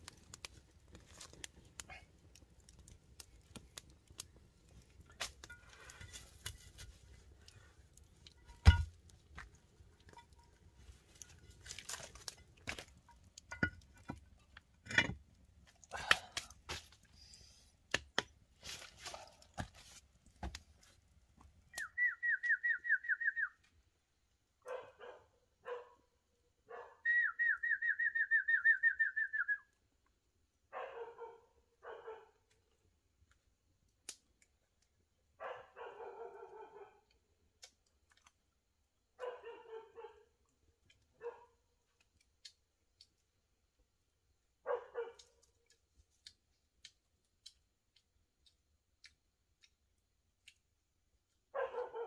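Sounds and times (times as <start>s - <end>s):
bark and stone knocks and scrapes: 4.8s - 15.8s, 17.9s - 21.6s
loud rapid trilled whistle: 27.1s - 29.6s.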